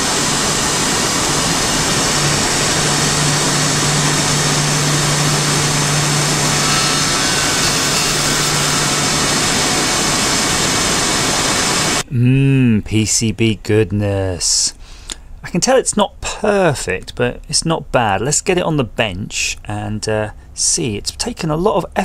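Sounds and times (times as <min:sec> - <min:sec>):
engraver spindle machining: 0:00.0 - 0:12.0
low hum: 0:00.0 - 0:12.8.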